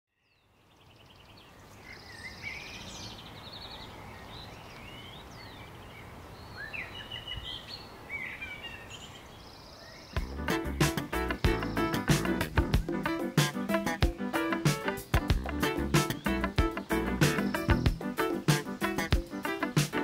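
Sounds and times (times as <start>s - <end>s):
birds chirping and trilling: 0.1s - 20.0s
outdoor background hiss: 0.2s - 20.0s
music: 10.2s - 20.0s.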